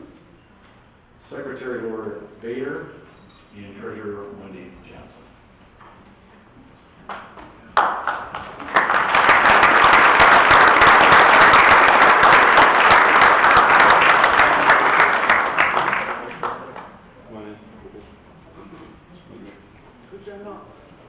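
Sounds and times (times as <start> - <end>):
audience applauding: 7.1 - 17.0.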